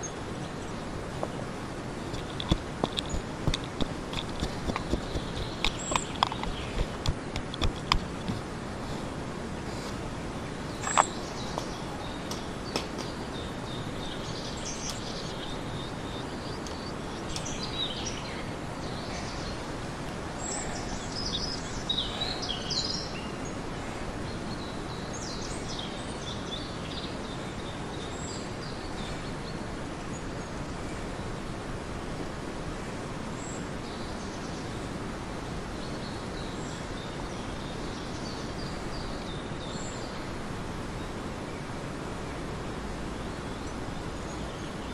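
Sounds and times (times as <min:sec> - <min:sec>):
small birds chirping: 0:00.0 - 0:31.4
outdoor background hiss: 0:00.0 - 0:44.9
sharp clicks: 0:02.1 - 0:08.4.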